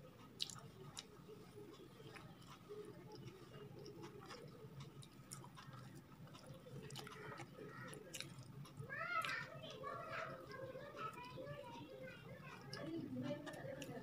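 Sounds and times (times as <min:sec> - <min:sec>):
faint chewing: 0:00.0 - 0:14.0
wet mouth clicks: 0:00.3 - 0:09.4.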